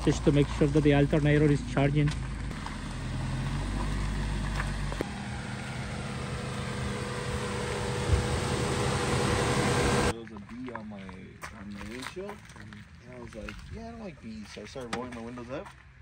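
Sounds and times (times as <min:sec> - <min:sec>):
car engine idling: 0:00.0 - 0:10.1.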